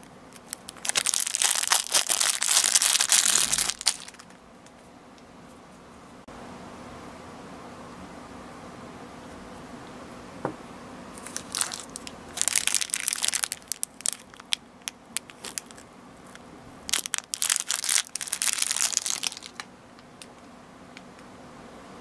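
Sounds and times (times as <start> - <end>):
plastic bag crinkling and tearing: 0.0 - 4.4, 11.2 - 19.7.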